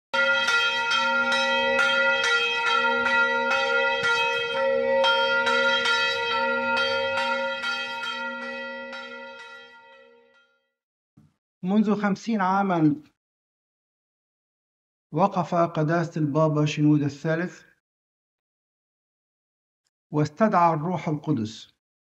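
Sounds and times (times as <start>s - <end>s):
church bells ringing: 0.1s - 10.4s.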